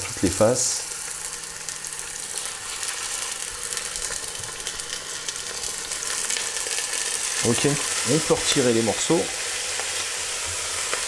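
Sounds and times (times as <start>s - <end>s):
meat sizzling in hot oil: 0.0s - 11.0s.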